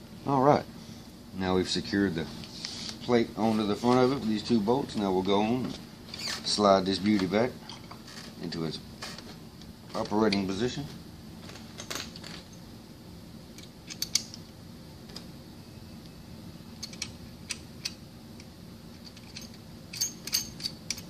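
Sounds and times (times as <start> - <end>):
metal seal parts clicking: 13.6 - 14.4, 16.8 - 21.0.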